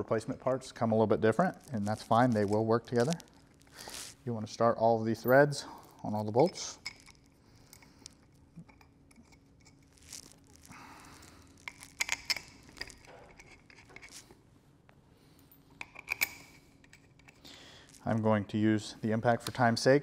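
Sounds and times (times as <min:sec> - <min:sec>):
clinks of metal bolts: 0:15.8 - 0:17.4.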